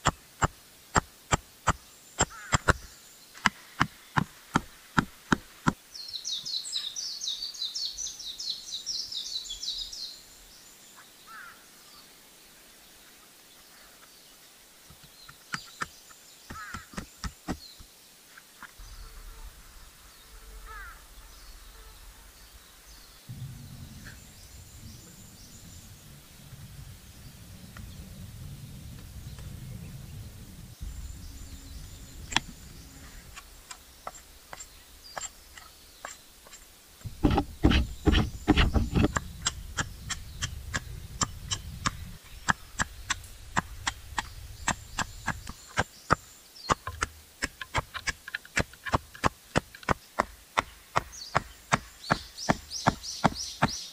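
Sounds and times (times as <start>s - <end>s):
faint birds calling: 0.0s - 53.9s
sharp knocks on wood: 16.5s - 17.7s, 37.0s - 53.9s
low rumble: 18.8s - 45.8s.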